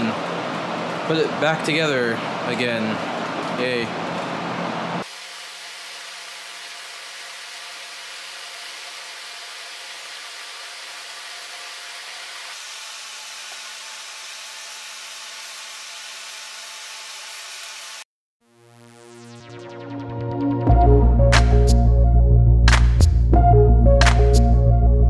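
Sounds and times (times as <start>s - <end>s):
fan hiss with low hum: 0.0s - 16.0s.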